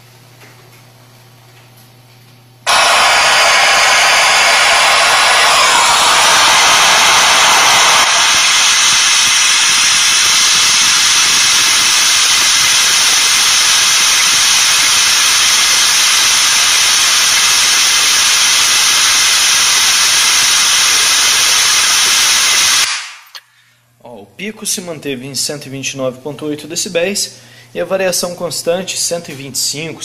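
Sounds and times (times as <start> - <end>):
bright pink noise hiss: 2.7 - 23.4.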